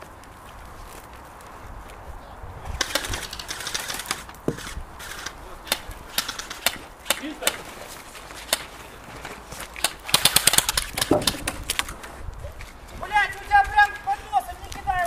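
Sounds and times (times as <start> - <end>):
airsoft gun clicks: 2.8 - 12.1.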